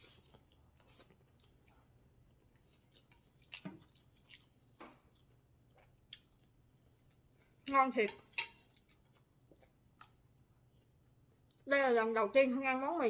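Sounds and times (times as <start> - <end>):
faint chewing noodles: 0.0 - 7.6, 8.6 - 11.7.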